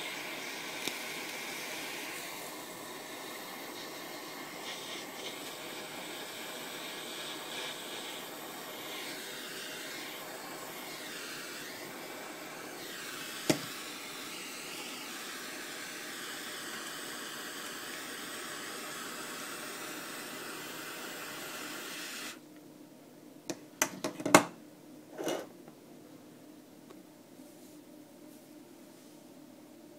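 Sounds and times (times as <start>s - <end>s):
blowtorch flame hissing: 0.0s - 22.4s.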